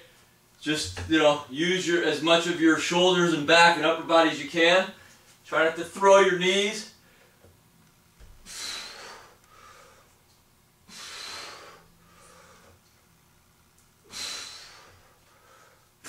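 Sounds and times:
man exhaling forcefully: 8.4 - 10.0, 14.0 - 15.6.

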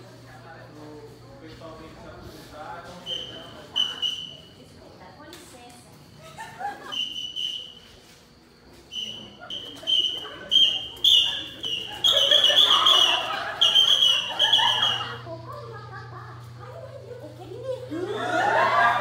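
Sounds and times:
whistle blowing: 3.0 - 4.5, 6.9 - 8.0, 8.9 - 15.2
voices of young audience: 8.9 - 19.0.

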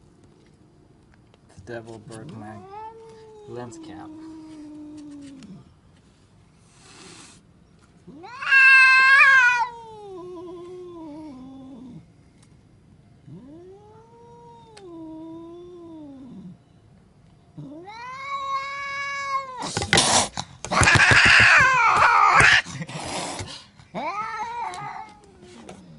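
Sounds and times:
cat yowling: 2.5 - 5.6, 8.1 - 12.0, 13.3 - 16.6, 17.6 - 19.9, 20.7 - 22.7, 23.9 - 25.7.

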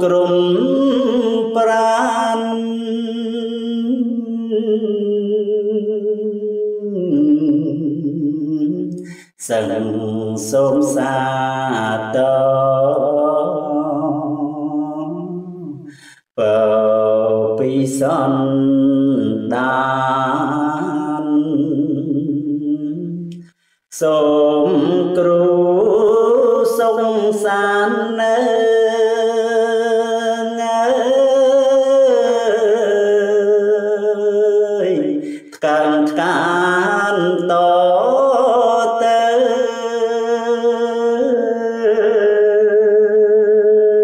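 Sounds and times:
man chanting verse: 24.0 - 44.0.

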